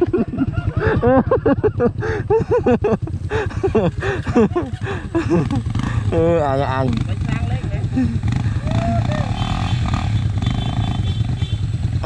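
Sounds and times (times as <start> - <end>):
dirt bike engines at low speed: 0.0 - 12.0
people talking: 6.1 - 9.4.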